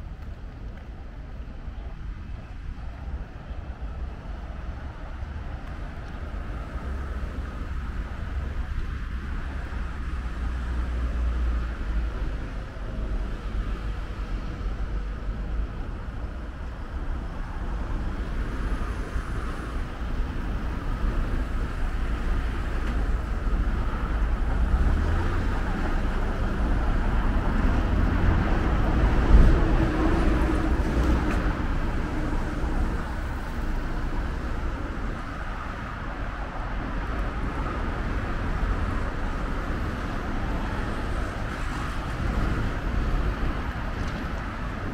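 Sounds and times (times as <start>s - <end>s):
passing cars rumbling: 0.0s - 44.9s.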